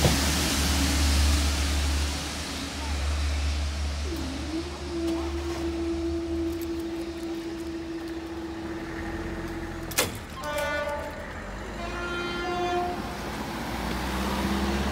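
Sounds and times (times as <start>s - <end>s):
barrier motor hum: 0.0s - 12.1s
short horn-like tones: 4.0s - 13.2s
barrier clunk: 9.8s - 11.3s.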